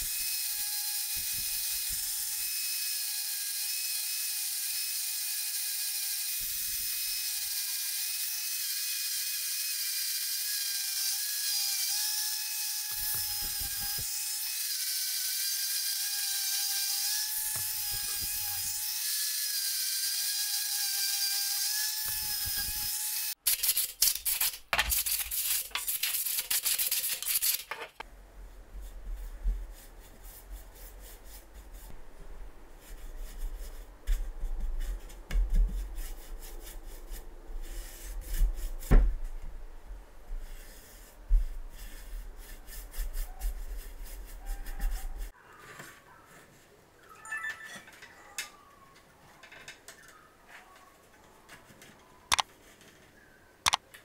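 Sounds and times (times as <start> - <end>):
loud scratchy rubbing: 23.5 - 27.7
brush rubbing on wood: 40.4 - 45.3.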